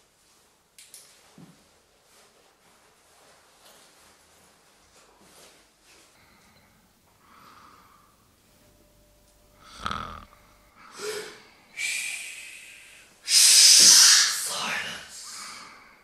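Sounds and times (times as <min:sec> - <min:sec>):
man snoring: 0:09.6 - 0:10.5
harsh hissing burst: 0:11.8 - 0:15.6.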